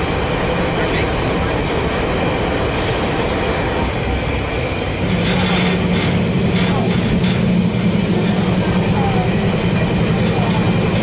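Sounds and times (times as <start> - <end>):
locomotive idling rumble: 0.0 - 11.0.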